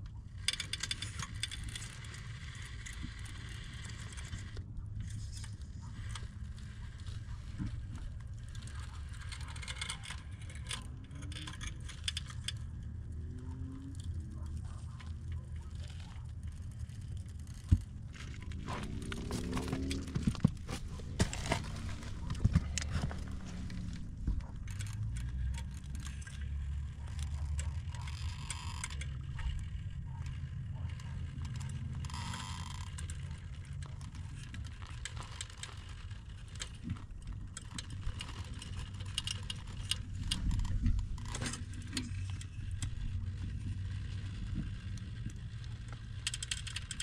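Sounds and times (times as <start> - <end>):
clicks and scrapes on rock: 0.0 - 47.0.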